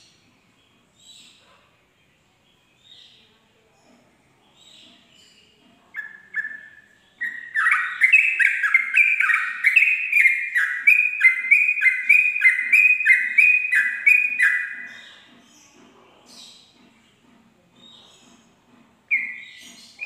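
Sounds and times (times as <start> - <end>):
bird singing quick whistled notes: 6.0 - 15.2.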